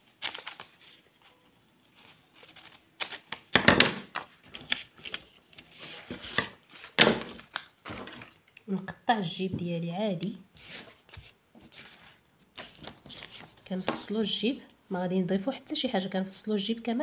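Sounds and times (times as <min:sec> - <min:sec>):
paper sheets rustling: 0:00.0 - 0:03.4, 0:10.6 - 0:14.2.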